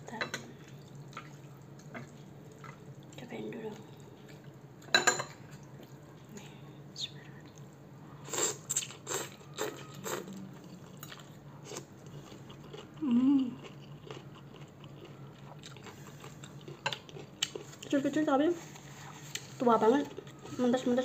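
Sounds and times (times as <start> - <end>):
chewing: 8.3 - 18.0
person humming: 13.0 - 13.6.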